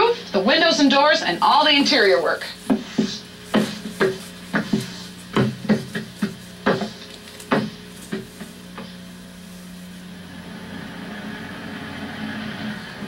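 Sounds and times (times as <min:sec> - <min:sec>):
push broom sweeping wooden floor: 0:00.6 - 0:10.2.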